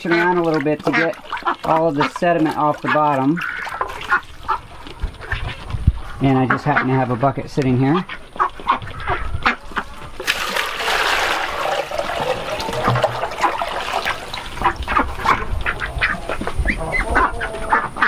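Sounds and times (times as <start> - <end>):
ducks quacking: 0.0 - 10.2, 11.6 - 18.0
water poured out of a tub: 10.2 - 16.4.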